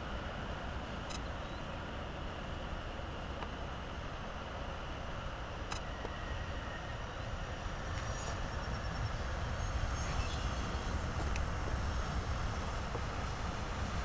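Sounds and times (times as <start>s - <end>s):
faint high whine: 0.0s - 14.0s
jet engines rumbling: 0.0s - 14.0s.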